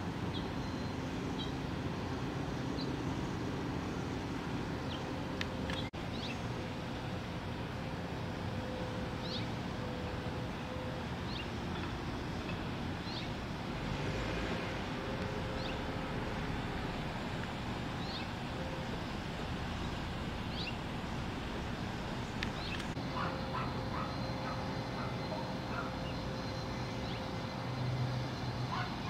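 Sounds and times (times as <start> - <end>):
distant traffic rumble: 0.0 - 29.0
bird chirping: 2.5 - 6.5, 11.3 - 13.4, 18.0 - 19.0, 19.7 - 21.4, 22.1 - 29.0.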